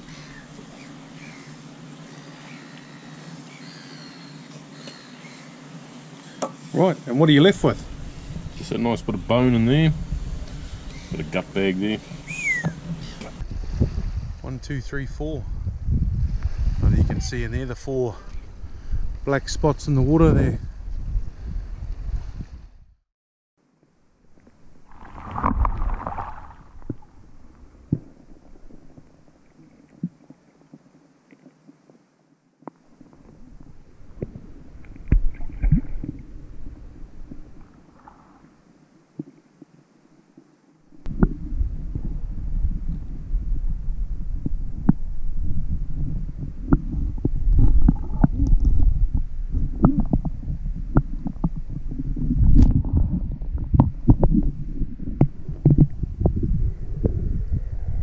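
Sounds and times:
rumbling underwater slosh: 24.6 - 30.2, 33.2 - 38.4, 41.0 - 58.0.

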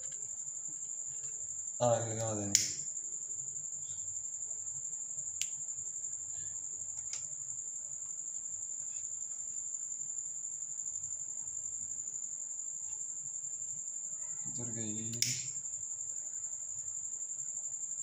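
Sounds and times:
cricket trilling: 0.0 - 18.0
lighter clicks: 2.5 - 2.8, 15.1 - 15.6.

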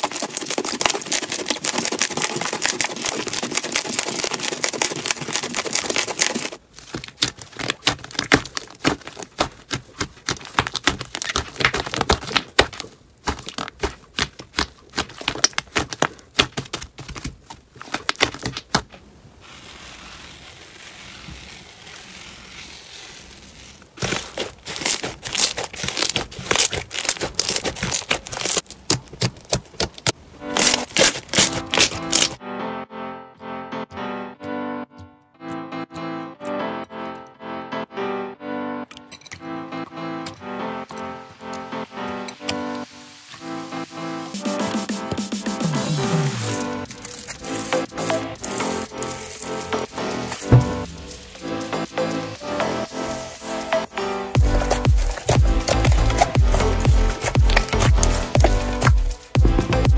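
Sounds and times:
slime clicking and crackling: 0.0 - 18.9, 19.8 - 32.4, 45.9 - 51.7, 54.4 - 59.9.

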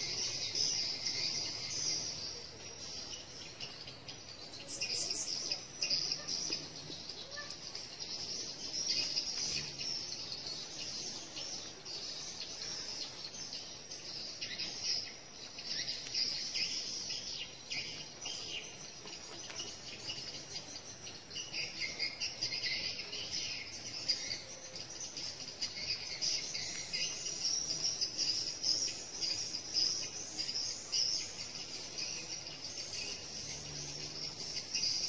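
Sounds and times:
insects chirping: 0.0 - 35.0.

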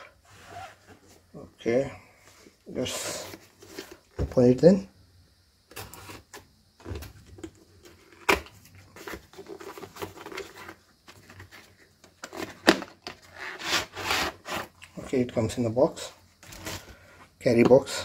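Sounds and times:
cardboard tearing and rustling: 8.0 - 14.8
knife slitting cardboard: 13.5 - 14.8.

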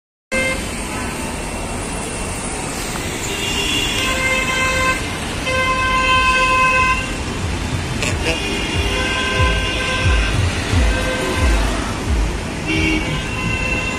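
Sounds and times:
vehicle horns honking: 0.3 - 0.7, 3.2 - 13.9
road traffic rumbling: 0.3 - 13.9.

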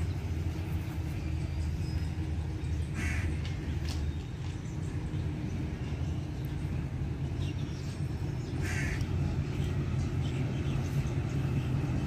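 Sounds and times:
steady low rumble: 0.0 - 12.0
crow cawing: 2.9 - 3.4, 8.6 - 9.0.

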